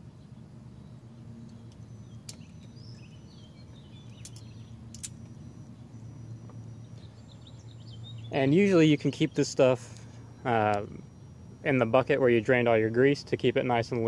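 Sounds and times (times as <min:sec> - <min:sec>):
steady low hum: 0:00.0 - 0:14.0
small steel parts clicking: 0:04.0 - 0:05.3.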